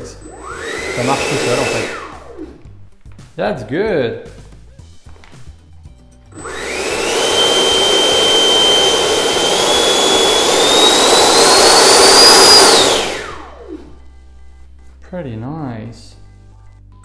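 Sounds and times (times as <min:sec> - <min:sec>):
electric ducted fan whine: 0:00.0 - 0:02.8, 0:06.3 - 0:14.5.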